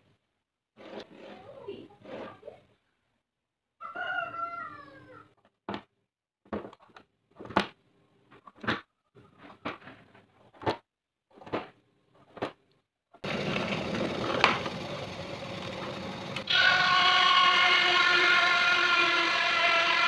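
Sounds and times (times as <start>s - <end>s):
tool scratching plywood: 0.8s - 2.4s
drill press motor running: 13.2s - 20.0s.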